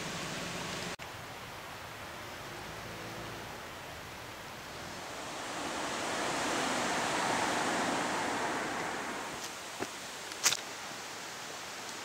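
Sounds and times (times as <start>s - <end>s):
low steady hiss: 0.0s - 12.0s
broad rushing noise: 1.8s - 11.2s.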